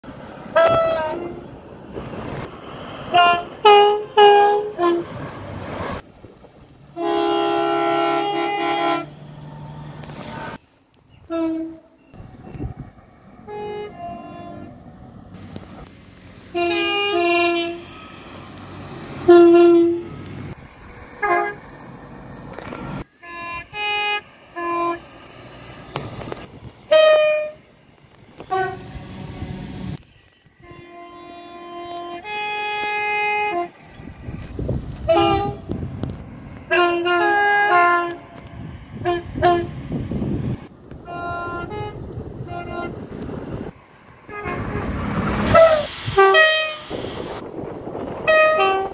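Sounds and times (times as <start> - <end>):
train running rumble: 0.1 - 10.6, 11.2 - 48.9
train horn blasts: 0.5 - 1.5, 3.1 - 5.2, 6.9 - 10.6, 11.2 - 12.1, 13.4 - 14.8, 16.5 - 18.2, 19.2 - 20.2, 21.2 - 21.6, 23.0 - 25.2, 26.9 - 27.6, 28.4 - 34.0, 35.0 - 35.8, 36.7 - 40.1, 41.0 - 43.0, 44.3 - 47.4, 48.2 - 48.9.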